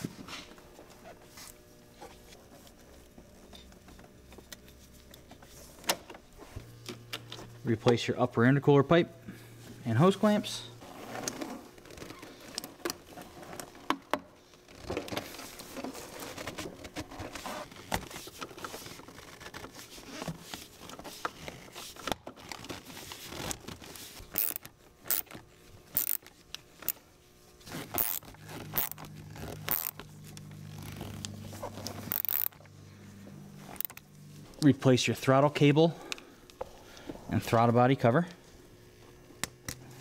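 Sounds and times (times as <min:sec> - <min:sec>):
hose clamp tightened with screwdriver: 0:24.4 - 0:25.4, 0:26.0 - 0:27.0, 0:27.9 - 0:29.1, 0:29.7 - 0:30.0, 0:32.1 - 0:32.6
rubber hose scraping on pipe: 0:27.6 - 0:32.6.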